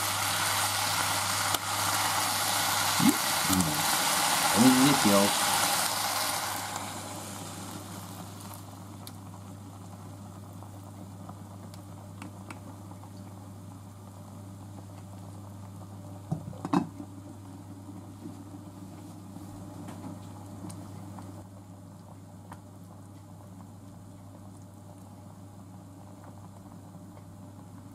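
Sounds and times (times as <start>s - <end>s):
water pouring into saucepan: 0.0s - 8.7s.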